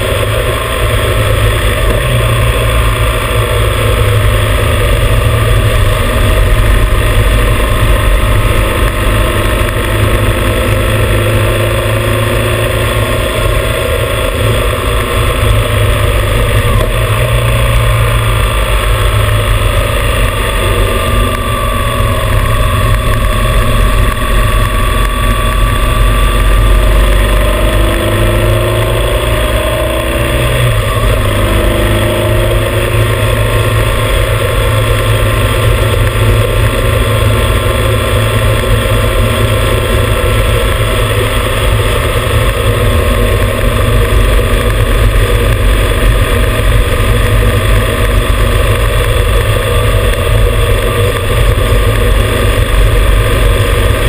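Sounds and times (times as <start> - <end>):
motorcycle engine running: 0.0 - 54.0
road noise: 0.0 - 54.0
wind rumble on microphone: 0.0 - 54.0.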